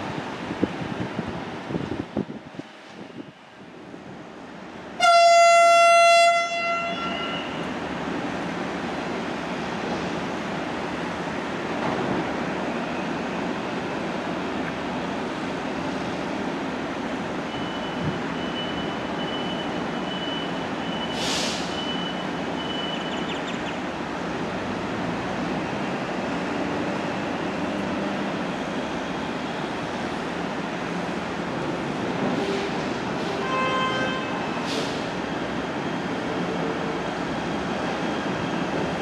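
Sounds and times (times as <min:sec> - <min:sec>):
train horn: 0:05.0 - 0:07.6, 0:32.5 - 0:34.6
air hiss: 0:21.2 - 0:21.8.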